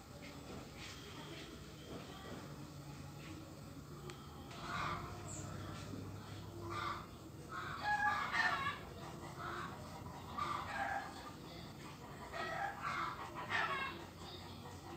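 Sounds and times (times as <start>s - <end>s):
chickens clucking: 6.6s - 14.9s.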